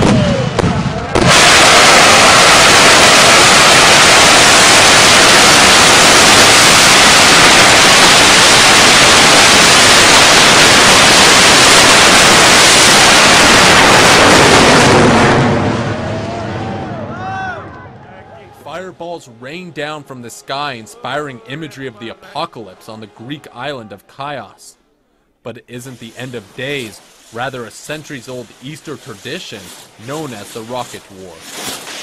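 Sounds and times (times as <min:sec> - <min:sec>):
rocket rushing hiss: 0:00.0 - 0:16.0, 0:25.8 - 0:32.0.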